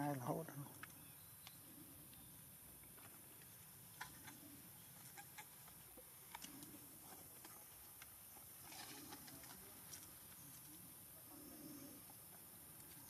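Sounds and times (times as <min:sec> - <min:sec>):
faint ticks and rustles: 0:00.0 - 0:13.0
soft low coos: 0:10.6 - 0:12.4.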